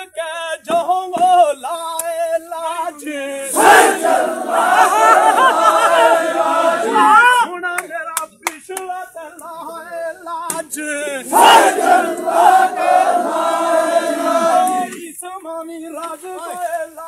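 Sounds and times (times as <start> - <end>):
men chanting together: 2.4 - 7.6, 9.0 - 15.2
loud collective shout: 3.4 - 7.5, 11.2 - 15.0.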